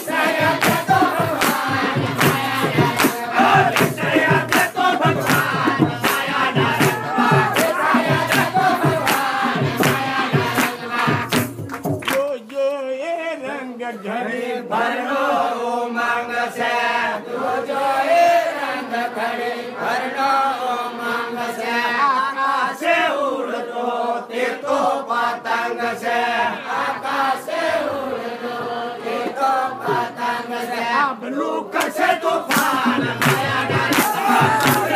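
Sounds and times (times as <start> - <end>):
drum beat: 0.0 - 12.2, 32.0 - 34.9
group singing devotional chant: 0.0 - 34.9.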